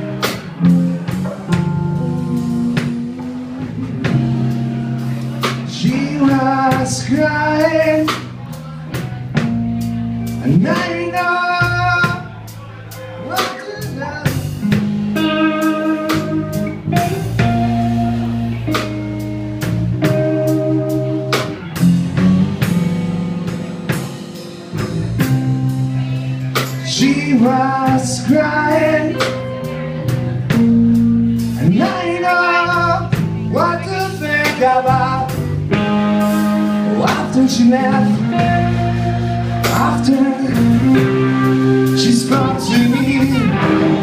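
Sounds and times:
live rock band playing: 0:00.0 - 0:44.0
person singing: 0:05.4 - 0:08.3, 0:10.4 - 0:14.4, 0:25.9 - 0:29.8, 0:31.5 - 0:35.4, 0:36.8 - 0:44.0.

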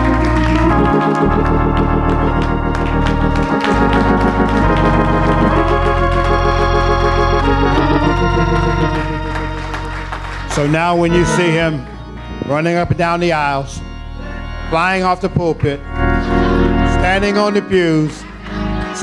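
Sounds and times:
faint hand clapping: 0:00.0 - 0:12.5, 0:17.7 - 0:19.0
organ playing sustained chords: 0:00.0 - 0:19.0.

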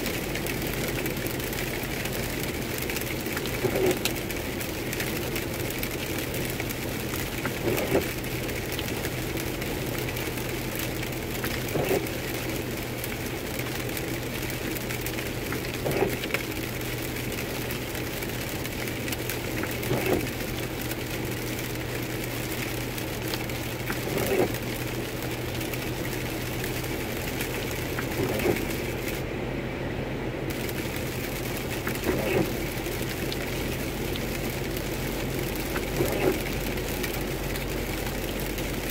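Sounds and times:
tyre and road noise: 0:00.0 - 0:29.3.

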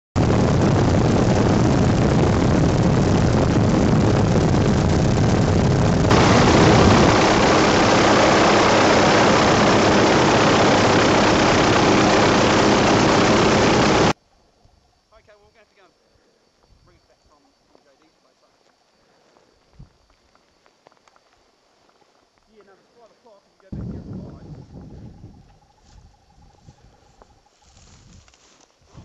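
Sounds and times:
helicopter engine and rotor: 0:05.9 - 0:14.2.

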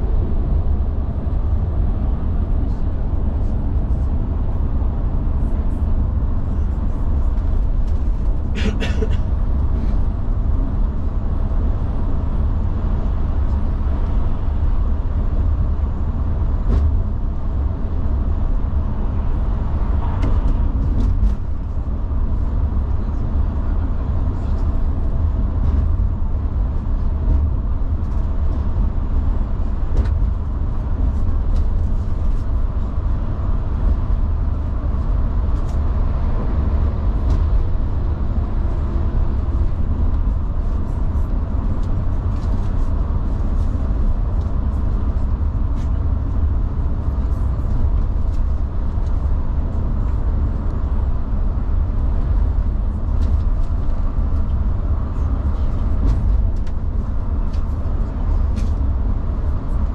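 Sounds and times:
engine and tyre rumble: 0:00.0 - 0:59.9.

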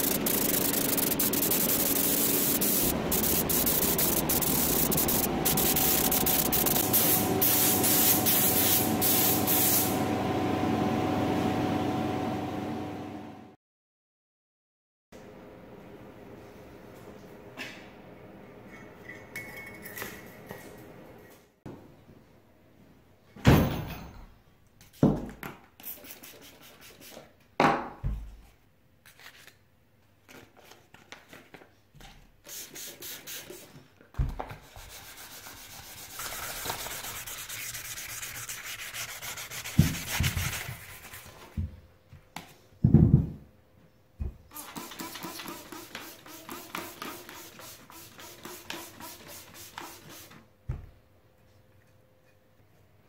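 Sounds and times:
sandpaper rubbing: 0:00.0 - 0:08.8, 0:34.6 - 0:41.5, 0:44.6 - 0:50.3.

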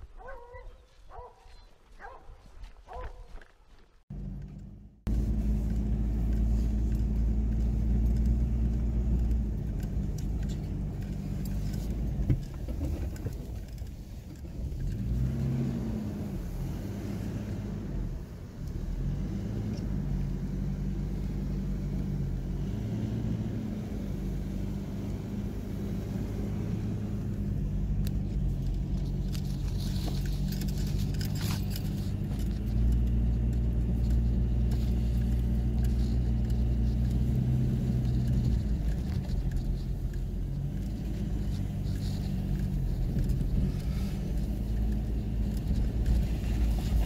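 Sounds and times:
car engine humming: 0:04.1 - 0:47.0
rattles and clicks: 0:05.4 - 0:15.5, 0:27.2 - 0:47.0.

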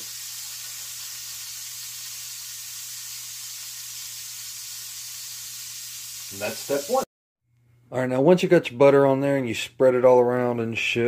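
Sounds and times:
butter sizzling in a pan: 0:00.0 - 0:07.1.

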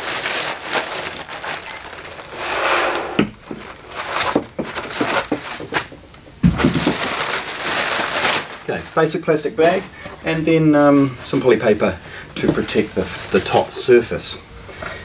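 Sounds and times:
plastic bag crinkling: 0:00.0 - 0:02.5, 0:03.3 - 0:13.8
foam packing scraping: 0:00.0 - 0:13.8
heavy thump: 0:02.6 - 0:03.7.

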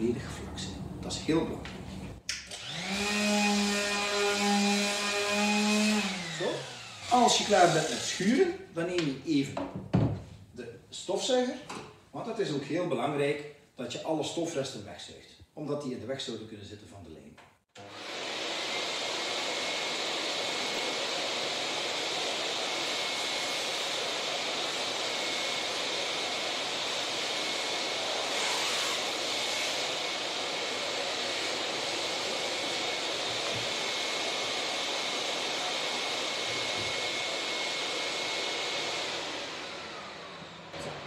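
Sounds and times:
vacuum cleaner running: 0:00.7 - 0:08.5, 0:17.8 - 0:41.0.

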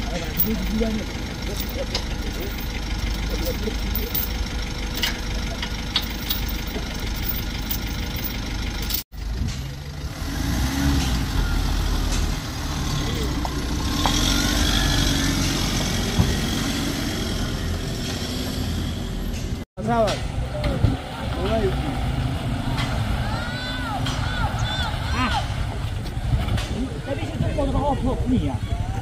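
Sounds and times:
people's voices: 0:00.0 - 0:04.4, 0:19.8 - 0:29.0
heavy truck engines running: 0:00.0 - 0:29.0.

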